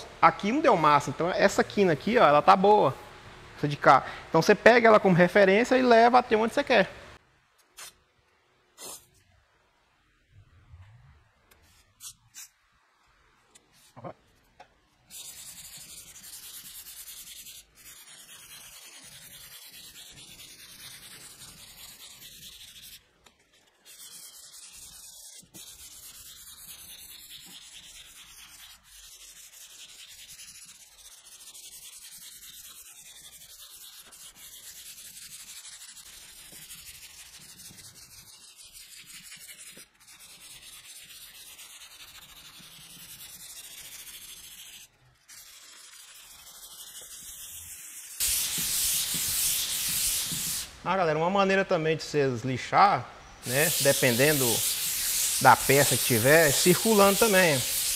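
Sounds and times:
sandpaper rubbing: 0:07.6 - 0:08.0, 0:08.8 - 0:09.2, 0:11.6 - 0:12.7, 0:15.0 - 0:50.8, 0:53.4 - 0:57.9.

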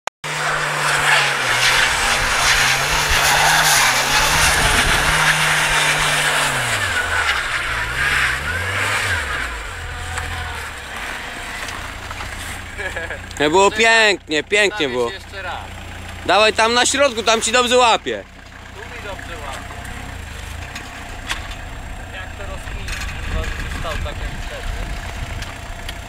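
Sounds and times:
car engine revving: 0:00.2 - 0:26.0
tyres spinning on snow: 0:00.3 - 0:26.0.

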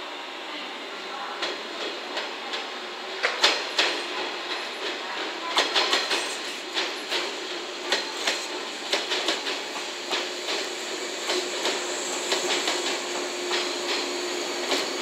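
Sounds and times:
train rumble: 0:01.2 - 0:15.0
train wheels clacking over rail joints: 0:03.2 - 0:15.0.

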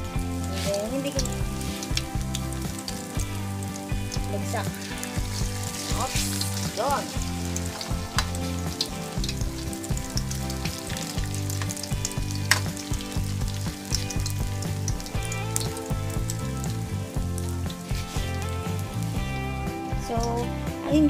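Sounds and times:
fritters sizzling in hot oil: 0:00.0 - 0:21.0
metal spatula clicking on pan: 0:01.2 - 0:15.8.

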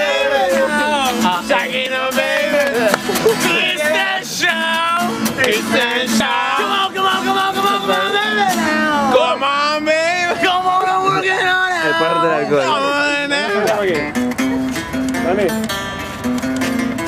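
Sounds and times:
group of voices singing: 0:00.0 - 0:13.6
guitar strumming: 0:00.0 - 0:17.0.

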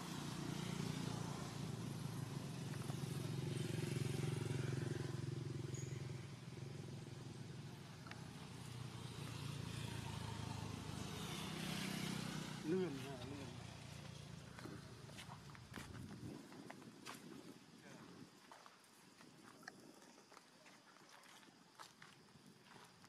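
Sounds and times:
vehicle engine humming: 0:00.0 - 0:15.9.

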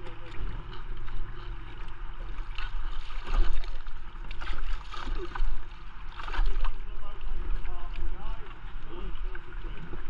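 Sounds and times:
paddles splashing in water: 0:00.0 - 0:10.0
steady low rumble: 0:00.0 - 0:10.0
water lapping around boats: 0:00.0 - 0:10.0.

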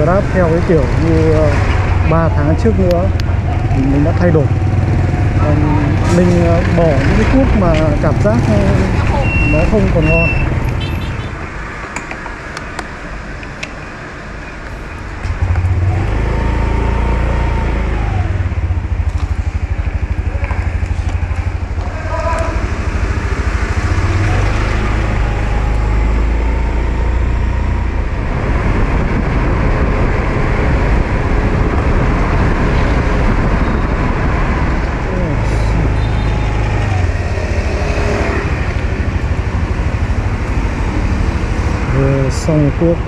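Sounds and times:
road traffic: 0:00.0 - 0:43.0
wind rumble on microphone: 0:26.8 - 0:42.0.

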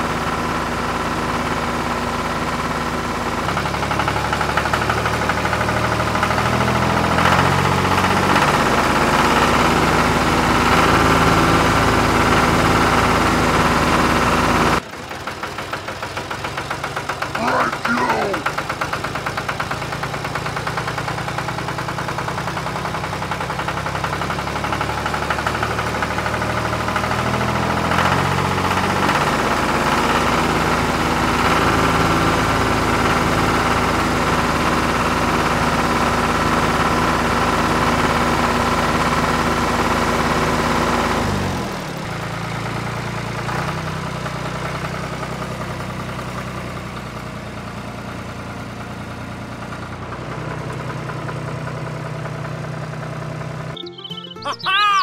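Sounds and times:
tractor engine revving: 0:00.1 - 0:15.0, 0:15.6 - 0:42.4.

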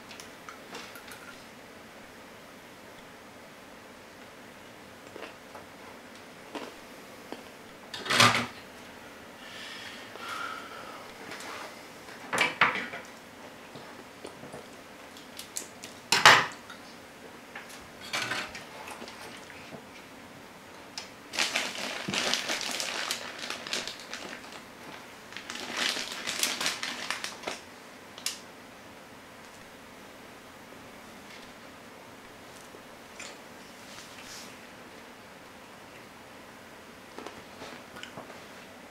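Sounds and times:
rustling and scraping: 0:33.6 - 0:34.6.

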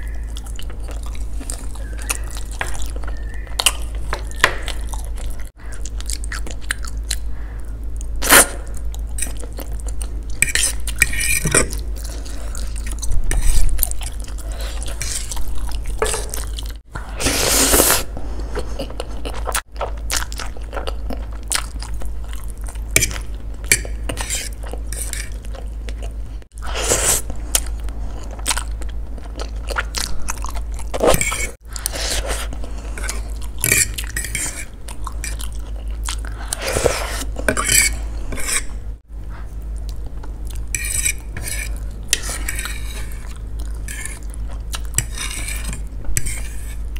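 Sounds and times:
chewing noodles: 0:00.0 - 0:07.3, 0:11.8 - 0:38.2.

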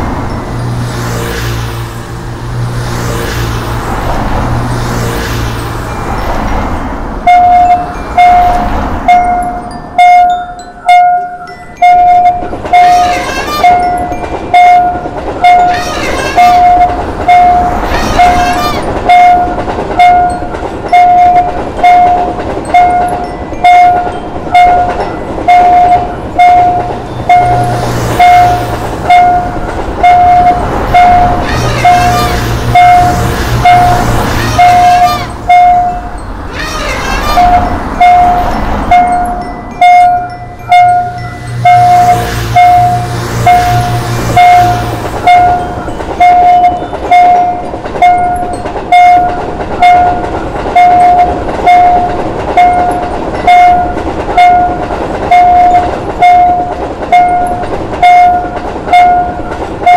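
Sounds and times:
railroad crossing bell dinging: 0:00.0 - 0:01.8, 0:05.6 - 0:59.9
road traffic: 0:00.0 - 0:59.9
train passing: 0:00.0 - 0:59.9
train horn: 0:12.7 - 0:20.2, 0:24.8 - 0:35.9, 0:36.9 - 0:38.6, 0:40.8 - 0:45.6.

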